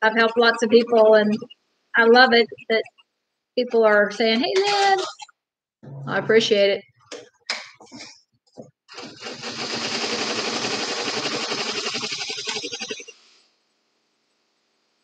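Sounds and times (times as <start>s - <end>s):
embroidery machine stitching: 8.9s - 13.2s.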